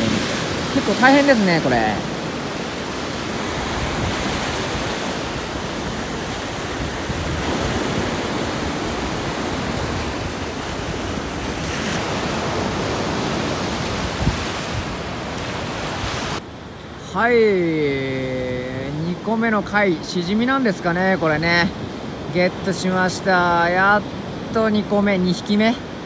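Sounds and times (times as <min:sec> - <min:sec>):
ocean surf breaking: 0:00.0 - 0:26.0
wind on microphone: 0:02.0 - 0:16.5.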